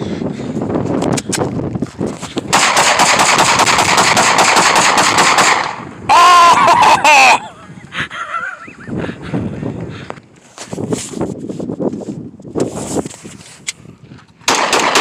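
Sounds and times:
rapid gunfire: 2.5s - 5.8s, 14.5s - 15.0s
loud yells: 6.1s - 7.4s.

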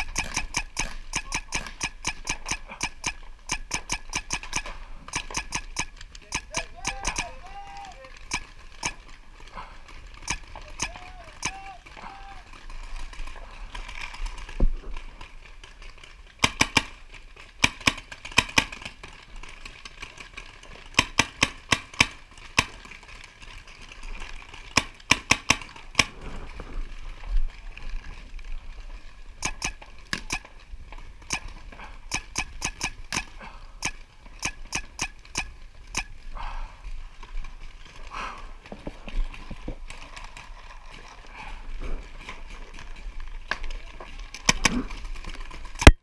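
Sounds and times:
paintball markers firing: 0.0s - 9.2s, 10.1s - 12.4s, 16.4s - 17.0s, 17.6s - 19.0s, 20.9s - 22.9s, 24.7s - 26.3s, 29.4s - 30.6s, 31.2s - 36.2s.

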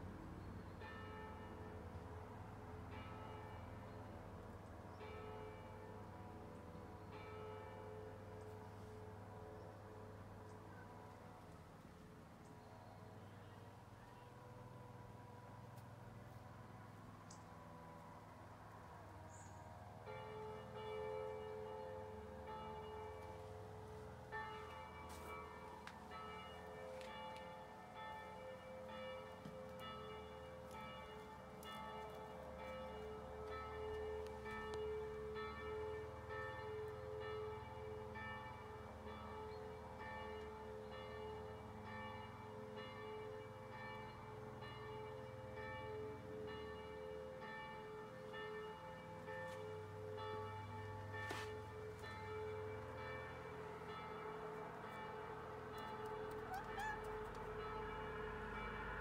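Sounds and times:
bells ringing in a peal: 20.0s - 59.0s.

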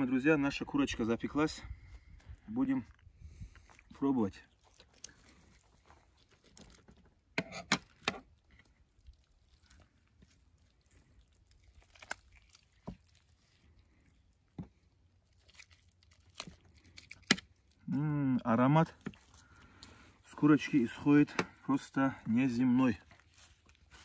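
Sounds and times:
aluminium foil crinkling and tearing: 4.0s - 17.9s, 22.4s - 24.0s.

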